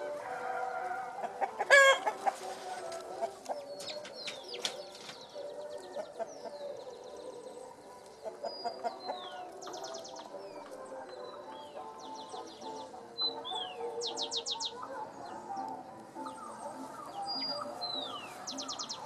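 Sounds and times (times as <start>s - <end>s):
chickens clucking: 0.0s - 19.0s
chicken squawk: 0.2s - 3.7s
small birds chirping and whistling: 1.2s - 19.0s.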